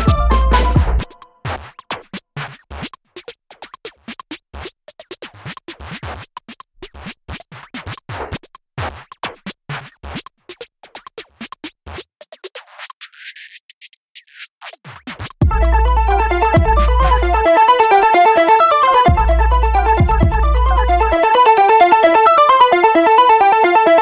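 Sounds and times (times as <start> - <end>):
electronic music with heavy bass: 0.0 - 1.1, 15.4 - 24.0
drum-machine hits: 0.0 - 1.7, 15.2 - 21.2
scratch-like clicks: 1.0 - 15.4.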